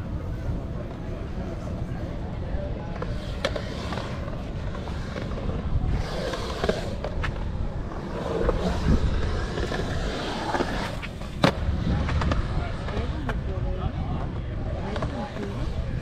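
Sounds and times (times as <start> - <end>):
skateboard wheels rolling on concrete: 0.0 - 16.0
skateboard clacks: 0.3 - 16.0.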